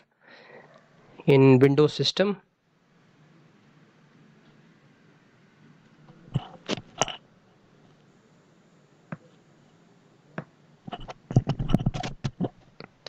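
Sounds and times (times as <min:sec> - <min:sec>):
computer mouse and keyboard clicks: 0:10.9 - 0:13.0.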